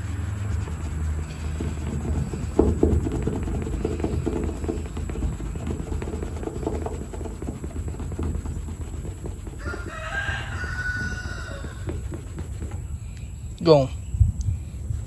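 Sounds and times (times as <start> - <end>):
towel rubbing on car paint: 0.0 - 13.2
rooster crowing: 9.6 - 12.5.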